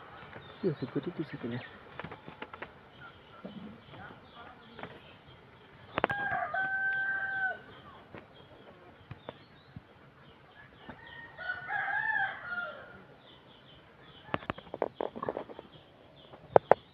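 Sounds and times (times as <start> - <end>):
rooster crowing: 6.1 - 7.7, 11.0 - 13.0.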